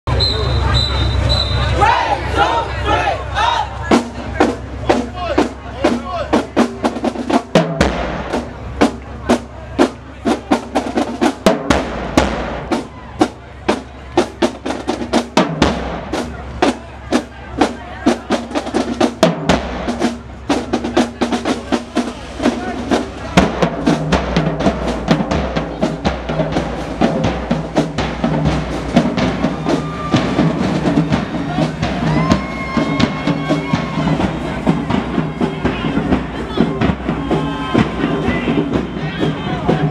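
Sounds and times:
bass drums: 0.1 - 39.9
snare drums: 3.4 - 39.9.

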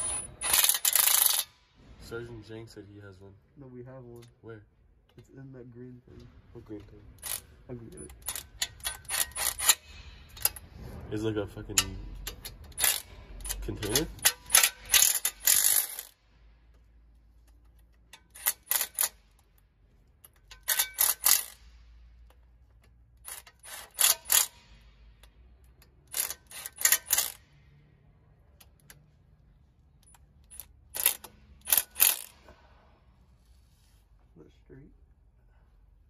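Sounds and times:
impact wrench trigger bursts: 0.0 - 1.5, 7.2 - 10.6, 12.1 - 16.2, 17.6 - 19.5, 20.2 - 27.6, 30.0 - 32.6.

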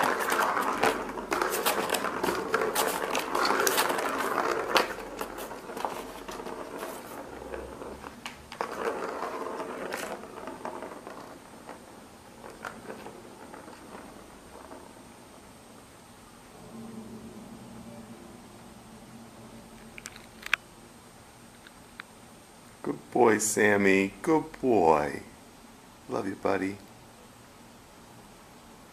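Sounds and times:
plastic ball rattling in track: 0.0 - 15.2.

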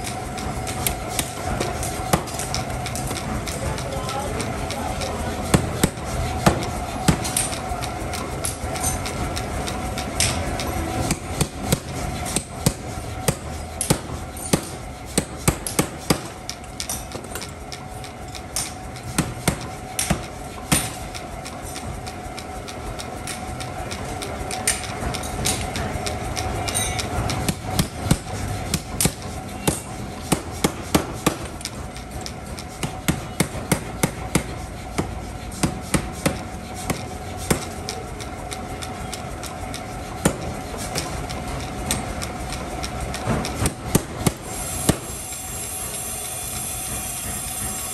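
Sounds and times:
power hammer strikes: 10.2 - 17.5, 18.6 - 21.1, 26.6 - 31.7, 32.8 - 37.9.

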